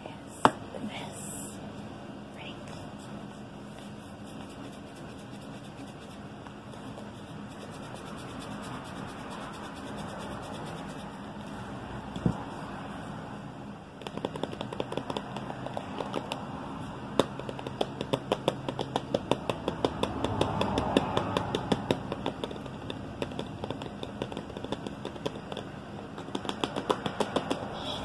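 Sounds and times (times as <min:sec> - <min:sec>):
fingernails tapping on a bottle: 0:14.0 - 0:16.4, 0:17.2 - 0:27.7.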